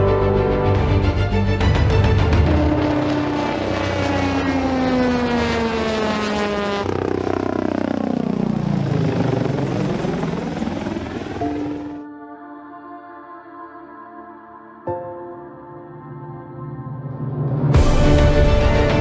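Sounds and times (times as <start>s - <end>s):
helicopter flying past: 0.8s - 12.0s.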